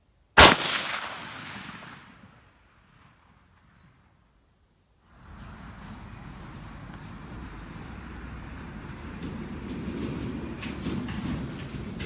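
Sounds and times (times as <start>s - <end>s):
rifle shot with echo: 0.4s - 3.2s.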